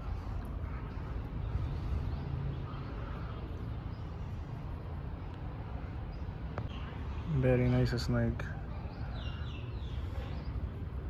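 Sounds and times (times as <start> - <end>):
low outdoor background rumble: 0.0 - 11.0.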